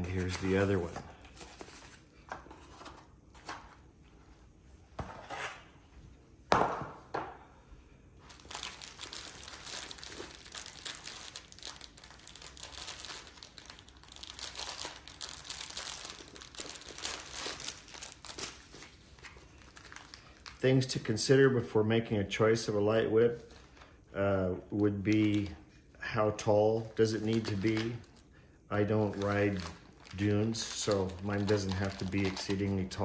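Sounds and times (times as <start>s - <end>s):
bubble wrap crinkling: 0.0s - 2.9s, 8.2s - 20.9s, 24.7s - 25.6s, 26.4s - 33.0s.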